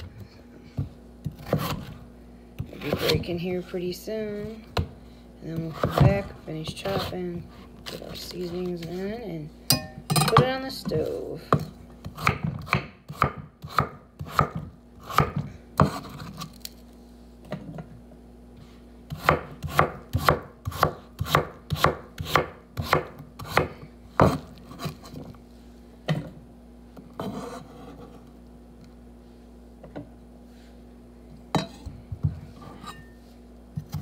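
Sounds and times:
knife chopping potato on board: 0:00.8 - 0:02.0, 0:02.6 - 0:03.4, 0:04.8 - 0:08.0, 0:10.3 - 0:16.5, 0:19.1 - 0:25.3
knife scraping cutting board: 0:01.3 - 0:02.0, 0:02.7 - 0:03.4, 0:12.1 - 0:16.7, 0:24.2 - 0:25.4, 0:27.1 - 0:28.3, 0:32.5 - 0:33.2.

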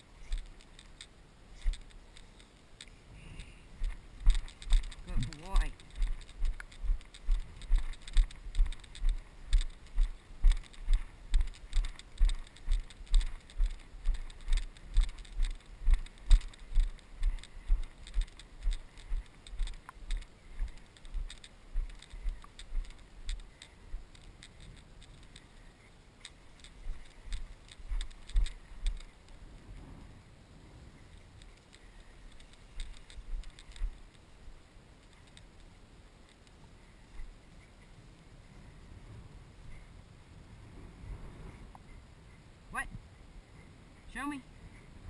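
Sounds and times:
footsteps in tall grass: 0:00.0 - 0:02.8, 0:03.4 - 0:29.4, 0:31.1 - 0:35.5.

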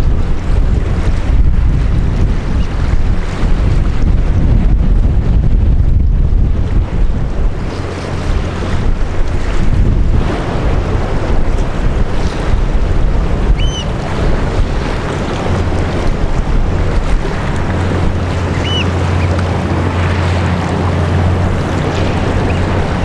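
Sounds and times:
low hum: 0:00.0 - 0:23.0
waves on water: 0:00.0 - 0:23.0
wind buffeting microphone: 0:00.0 - 0:23.0
bird chirping: 0:18.5 - 0:19.3.

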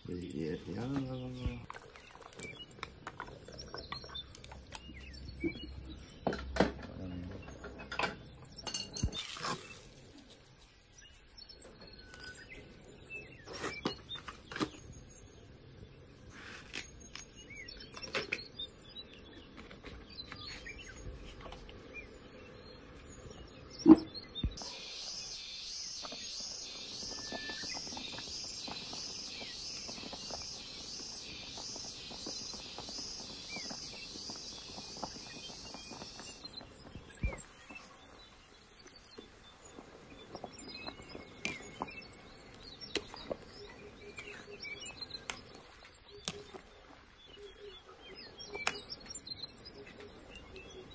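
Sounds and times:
clinks on metal cooking pot: 0:07.6 - 0:09.2.

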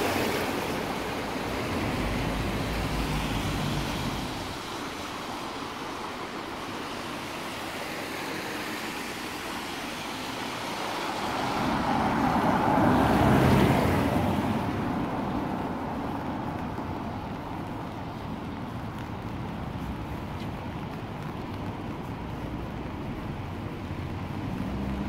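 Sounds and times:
car tyres swishing on wet road: 0:00.0 - 0:25.0
rain hiss: 0:00.0 - 0:25.0
traffic on wet road: 0:00.0 - 0:25.0.

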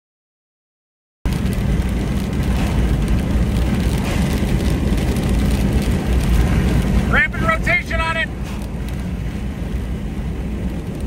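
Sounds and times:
road rumble inside vehicle: 0:01.3 - 0:11.0.

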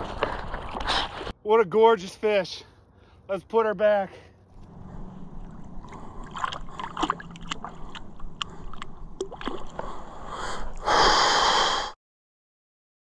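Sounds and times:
water sloshing and splashing: 0:00.0 - 0:01.4, 0:04.6 - 0:10.8.

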